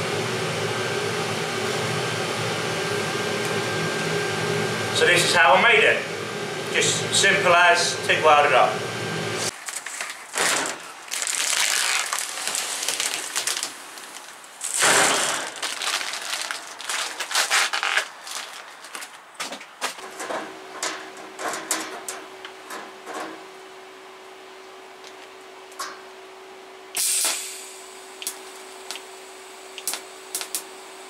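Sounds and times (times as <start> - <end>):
steady low hum: 0.0 - 9.6
plastic and metal sheet crinkling: 9.5 - 22.1.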